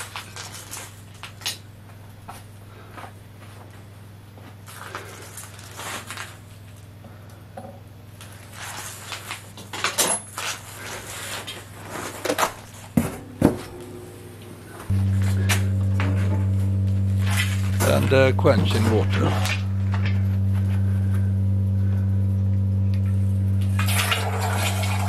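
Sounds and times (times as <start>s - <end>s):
low hum: 12.4s - 25.0s
sharp knocks: 12.9s - 16.5s.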